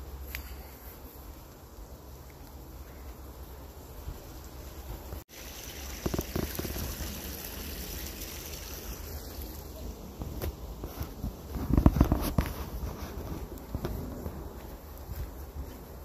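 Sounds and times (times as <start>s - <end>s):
creek water rushing: 5.3s - 9.8s.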